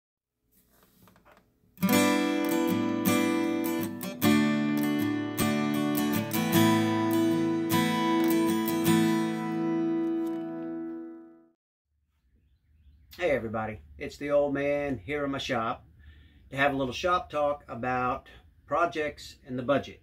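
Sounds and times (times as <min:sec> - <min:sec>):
acoustic guitar strummed chords: 0:01.8 - 0:11.4.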